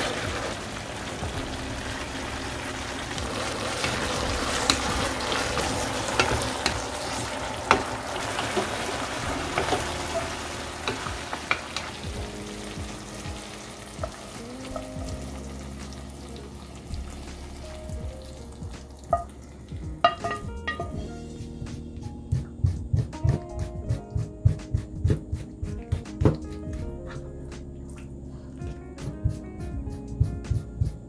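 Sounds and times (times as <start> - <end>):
food sizzling in a frying pan: 0.0 - 19.3
soft background music: 0.0 - 31.0.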